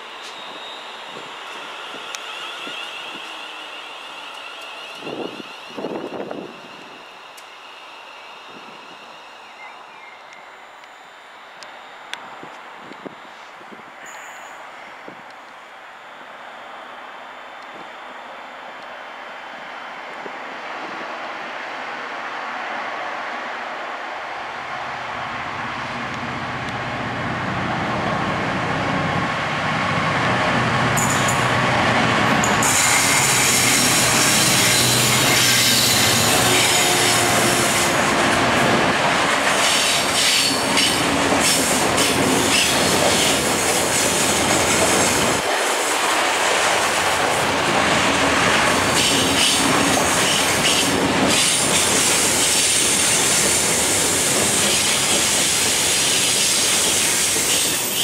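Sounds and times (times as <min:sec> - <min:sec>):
high wheel squeal: 0:00.0 - 0:10.2, 0:32.4 - 0:37.9, 0:39.6 - 0:43.6, 0:54.4 - 0:58.0
diesel locomotive engine: 0:00.0 - 0:58.0.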